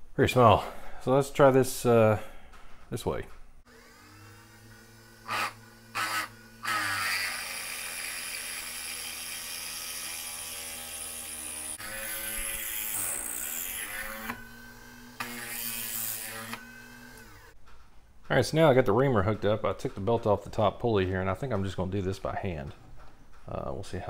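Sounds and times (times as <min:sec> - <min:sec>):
drill bit cutting metal: 0:03.7 - 0:17.5
motor hum: 0:03.7 - 0:17.6.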